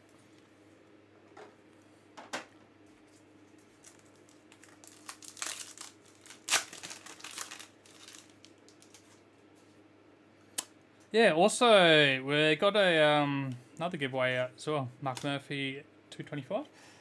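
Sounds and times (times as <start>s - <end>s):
wrapper crinkling and tearing: 3.8s - 9.2s.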